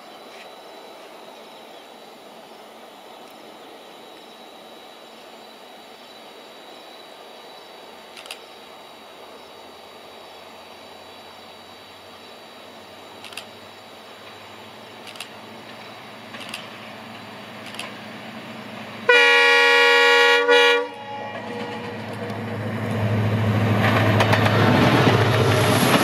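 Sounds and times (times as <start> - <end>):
outdoor hiss: 0.0 - 23.8
diesel locomotive engine drone: 0.0 - 26.0
thin high tone: 20.8 - 22.6.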